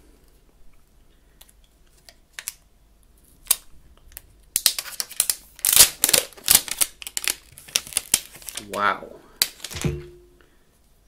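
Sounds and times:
plastic film peeling and crackling: 1.4s - 9.8s.

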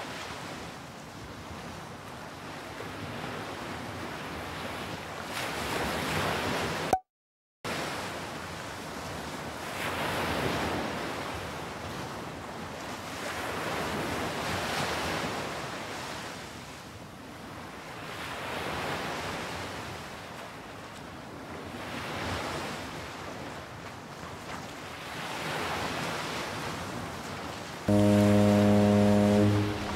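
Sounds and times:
ocean waves washing: 27.9s - 29.9s.

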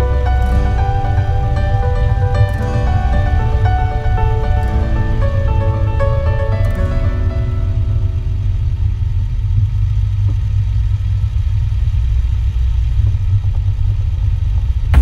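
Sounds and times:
background music: 0.0s - 9.0s
vehicle engine rumble: 0.0s - 15.0s.

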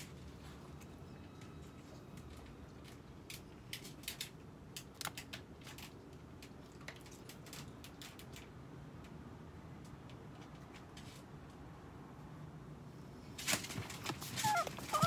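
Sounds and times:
faint low room hum: 0.0s - 15.0s
clicks of dogs in wire crate: 1.8s - 9.2s, 13.4s - 15.0s.

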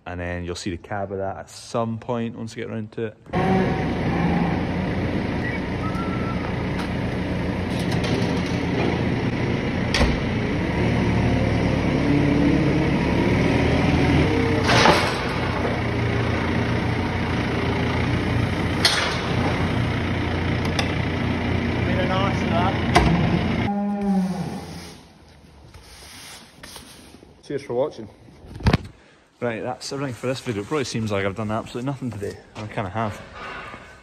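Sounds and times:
diesel engine running: 3.3s - 23.7s.

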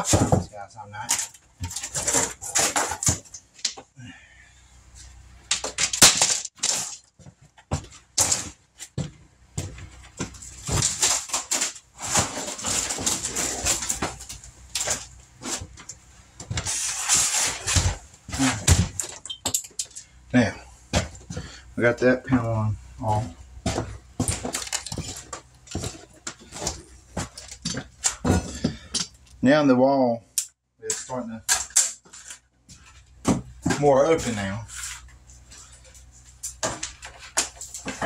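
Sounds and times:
wood paneling cracking and scraping: 0.0s - 3.9s, 5.4s - 20.2s, 22.2s - 29.4s, 30.9s - 38.0s.

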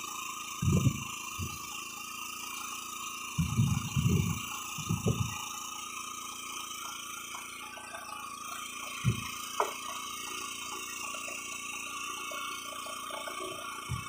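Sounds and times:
boat engine idling: 0.2s - 14.0s
dull thump: 3.4s - 5.4s.

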